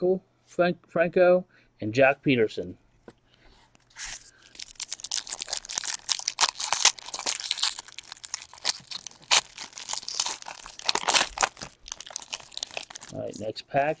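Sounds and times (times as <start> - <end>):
foil wrapper tearing and crinkling: 4.0 - 13.5.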